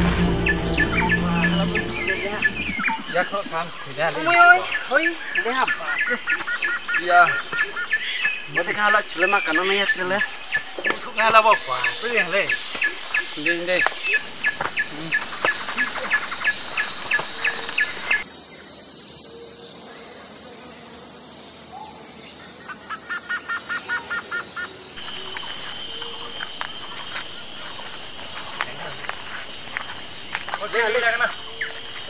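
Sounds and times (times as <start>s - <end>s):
insect hum: 0.0s - 23.9s, 24.5s - 32.0s
high insect drone: 25.0s - 32.0s.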